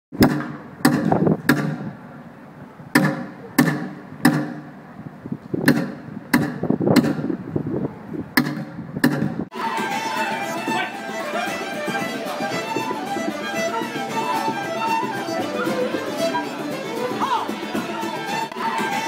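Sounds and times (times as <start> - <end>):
drum beats echoing: 9.5 - 19.0.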